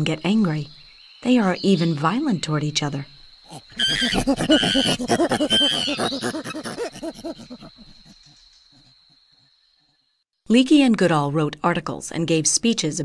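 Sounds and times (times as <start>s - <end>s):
chimpanzees hooting and screaming: 3.5s - 10.0s.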